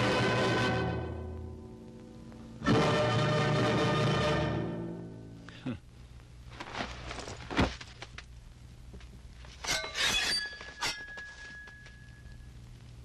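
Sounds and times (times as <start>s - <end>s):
sword blades clashing: 9.6s - 12.0s
metallic ringing tone: 9.6s - 12.5s.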